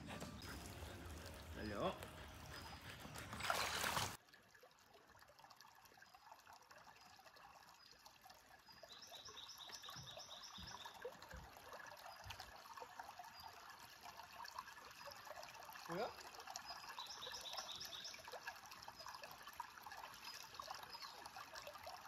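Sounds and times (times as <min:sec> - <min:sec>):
water splashing: 0:00.0 - 0:07.4
creek trickling over stones: 0:00.0 - 0:22.0.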